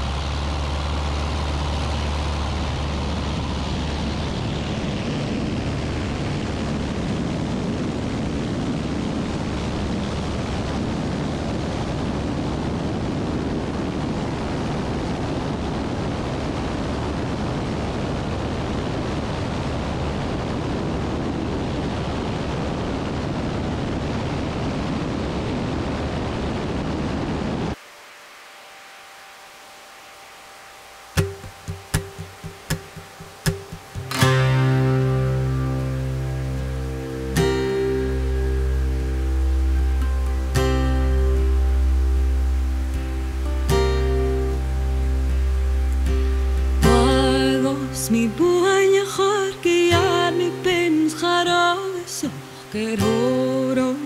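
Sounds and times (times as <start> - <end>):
propeller aircraft engine: 0.0 - 27.8, 38.0 - 40.5
wind noise on microphone: 0.0 - 27.9, 31.0 - 54.0
faint low hum: 27.6 - 54.0.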